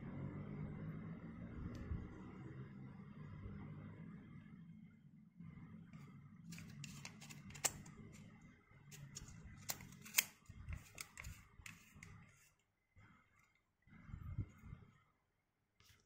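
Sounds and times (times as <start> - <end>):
faint low hum: 0.0 - 16.0
camera lens clicks and rubbing: 6.5 - 8.2, 9.0 - 12.5.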